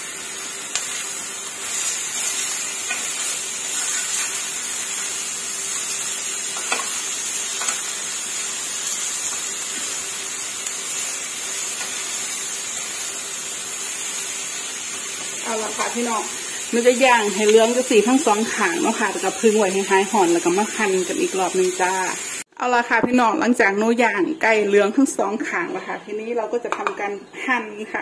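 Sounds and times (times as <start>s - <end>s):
chicken sizzling in a grill pan: 0.0s - 22.4s
metal tongs clicking on pan: 6.6s - 7.0s, 7.6s - 7.9s.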